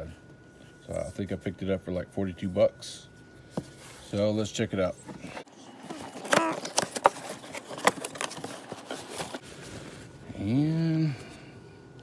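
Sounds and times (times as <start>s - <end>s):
cardboard and packing rustling: 3.5s - 10.3s.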